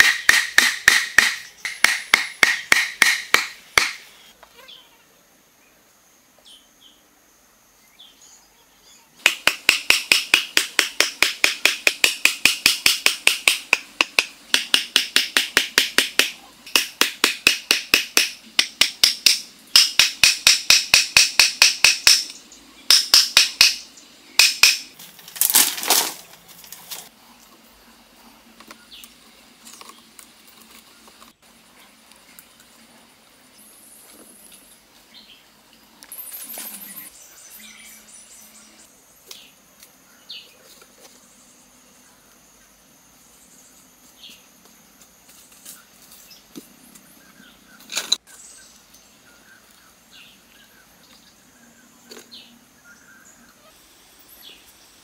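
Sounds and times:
stakes being driven into ground: 0.0 - 4.1, 9.2 - 27.1.

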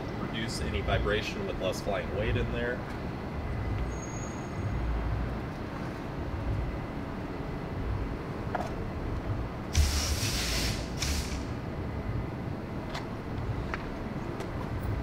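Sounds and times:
low outdoor rumble: 0.0 - 15.0
loud hissing bursts: 9.7 - 11.6.

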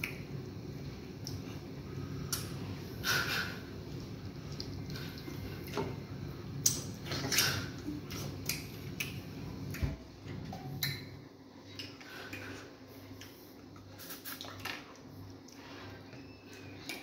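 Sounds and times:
wet chewing and smacking: 6.6 - 9.8.

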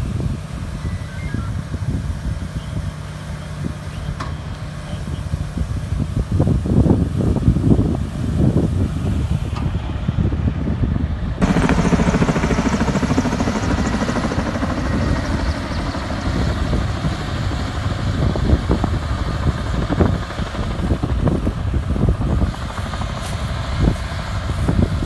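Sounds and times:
helicopter overhead: 0.0 - 25.0
heavy truck engines running: 11.3 - 25.0.

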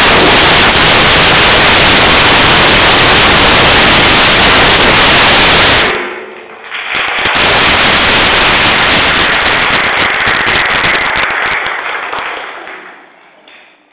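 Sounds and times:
audience applauding: 6.7 - 13.4.

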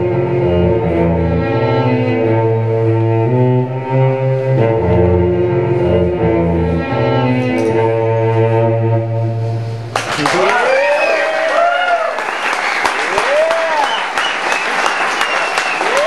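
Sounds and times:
bowed cello: 0.0 - 10.0.

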